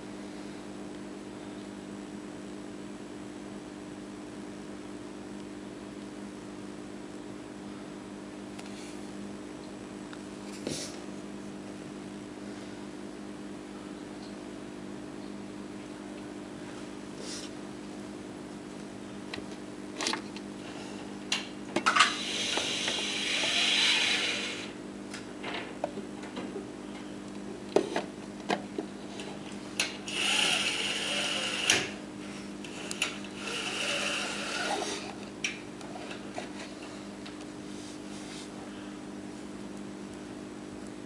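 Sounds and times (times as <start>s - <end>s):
zoom motor whirring: 22.1s - 24.8s, 30.1s - 32.0s, 32.7s - 35.2s.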